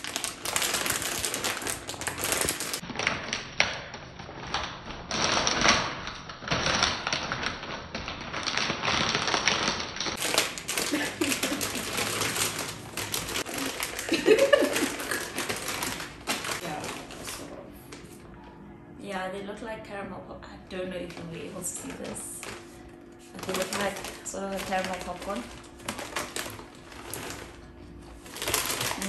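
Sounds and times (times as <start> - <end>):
plastic snack bag crinkling: 0.0 - 17.6, 21.1 - 29.0
person laughing: 10.7 - 12.4, 13.5 - 15.6.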